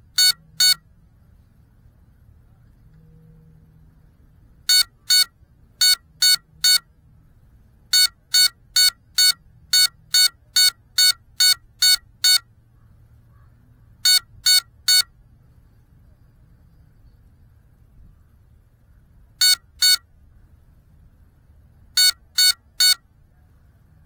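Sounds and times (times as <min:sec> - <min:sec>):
short electronic beeps: 0:00.1 - 0:00.8, 0:04.6 - 0:06.9, 0:07.9 - 0:12.5, 0:14.0 - 0:15.1, 0:19.4 - 0:20.0, 0:22.0 - 0:23.0.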